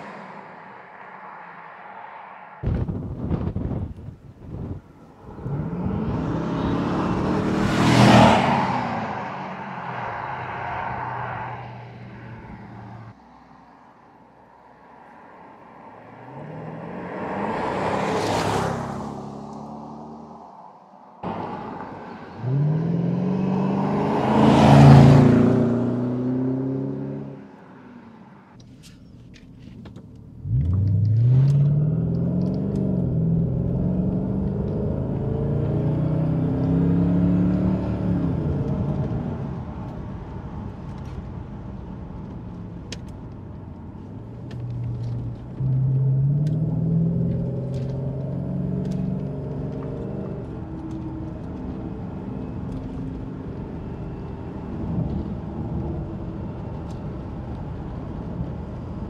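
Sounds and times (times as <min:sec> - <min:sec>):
car engine accelerating past: 0:05.1 - 0:13.1, 0:21.2 - 0:28.2, 0:30.4 - 0:39.7, 0:44.6 - 0:57.3.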